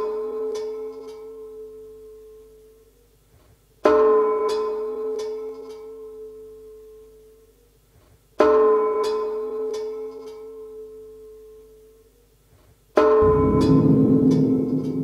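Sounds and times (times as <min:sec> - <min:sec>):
ringing gong-like metal tones: 0:13.1 - 0:15.0.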